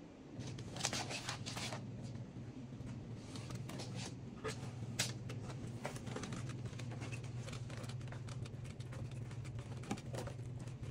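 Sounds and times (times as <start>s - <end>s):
steady low hum: 0.0s - 10.9s
claws clicking and scraping: 3.3s - 10.9s.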